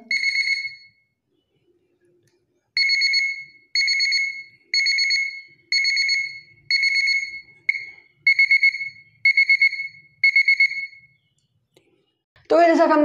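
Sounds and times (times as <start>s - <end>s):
alarm buzzer beeping: 0.0s - 1.0s, 2.8s - 11.2s.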